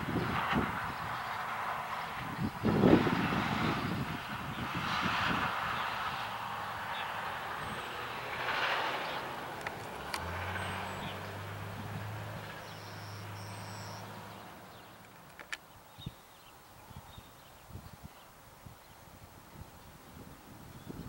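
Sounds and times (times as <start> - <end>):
distant motor vehicle rushing: 0.0 - 15.6
low engine hum: 0.0 - 17.2
sharp clicks: 15.0 - 15.7.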